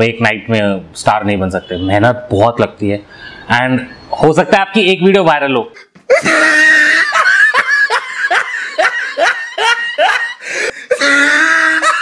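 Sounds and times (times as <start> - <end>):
person laughing: 5.8 - 12.0.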